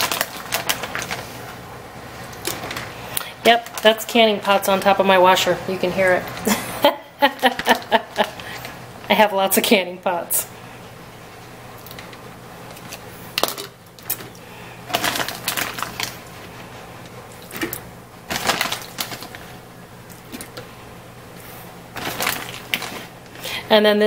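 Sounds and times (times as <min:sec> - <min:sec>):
pots clinking and rattling: 0:00.0 - 0:01.3, 0:02.2 - 0:03.9, 0:12.8 - 0:16.2, 0:22.0 - 0:23.4
washing machine humming: 0:00.0 - 0:24.0.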